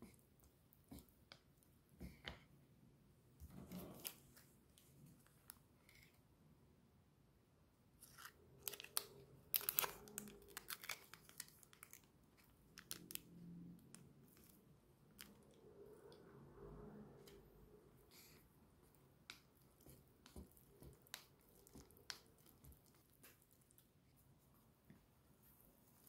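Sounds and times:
plastic sachet crinkling: 0:08.0 - 0:13.3.

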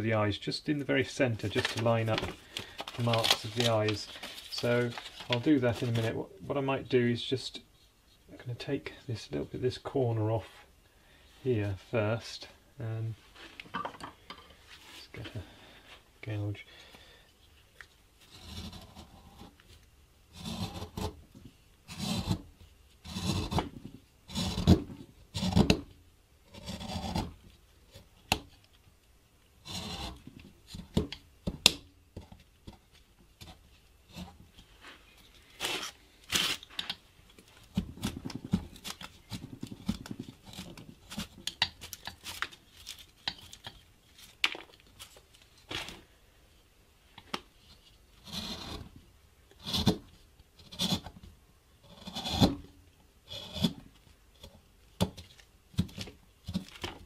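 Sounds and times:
gouge scraping through wood: 0:18.3 - 0:19.6, 0:20.3 - 0:21.2, 0:21.9 - 0:22.4, 0:23.0 - 0:23.7, 0:24.3 - 0:25.7, 0:26.5 - 0:27.4, 0:29.6 - 0:30.2, 0:48.2 - 0:48.9, 0:49.6 - 0:50.0, 0:50.6 - 0:51.1, 0:51.9 - 0:52.6, 0:53.3 - 0:53.8.

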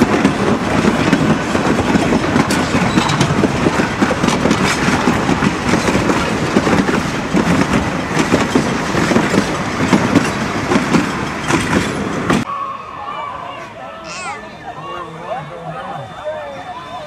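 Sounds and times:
train wheels clickety-clack: 0:00.0 - 0:12.5.

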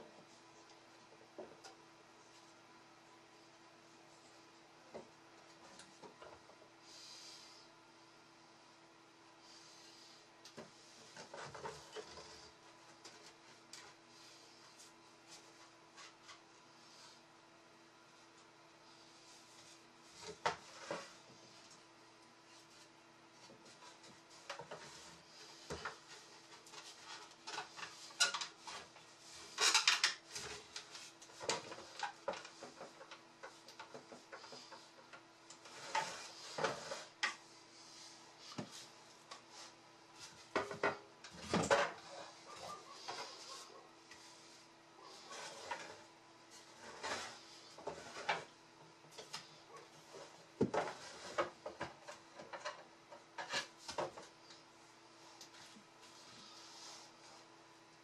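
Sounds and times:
wood scraping: 0:38.5 - 0:48.5.

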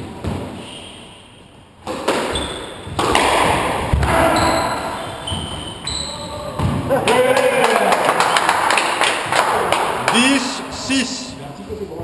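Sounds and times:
squash ball cracking off rackets: 0:01.8 - 0:04.2
shoes squeaking on wooden floor: 0:02.3 - 0:03.0, 0:04.0 - 0:06.8.

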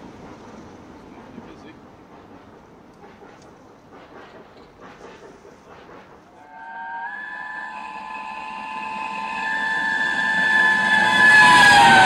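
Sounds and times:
oncoming train noise: 0:00.0 - 0:12.0
steam whistle blast: 0:06.3 - 0:12.0.

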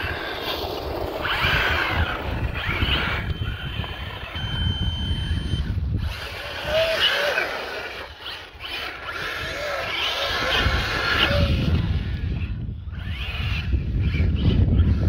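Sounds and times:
tyres on ground: 0:00.0 - 0:14.9
rc buggy motor whine: 0:00.0 - 0:15.0
wind rumbling on microphone: 0:00.0 - 0:15.0.

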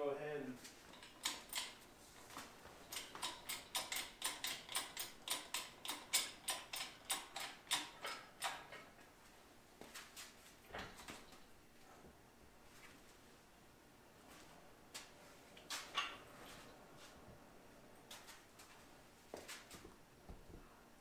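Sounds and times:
hydraulic jack clicking: 0:02.9 - 0:08.6.

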